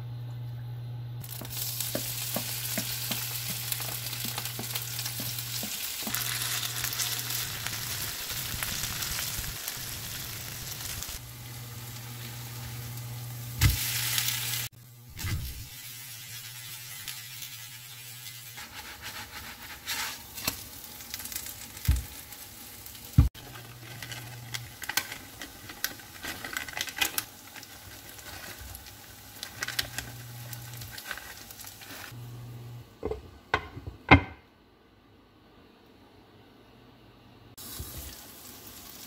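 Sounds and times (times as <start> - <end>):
potato pancake sizzling in oil: 1.2 - 32.2, 37.6 - 39.0.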